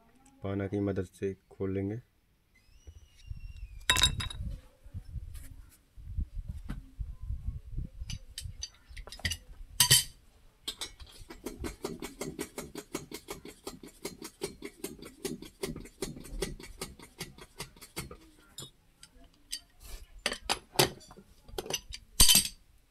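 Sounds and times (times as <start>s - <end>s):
spanner clinking on metal: 20.3s - 22.6s.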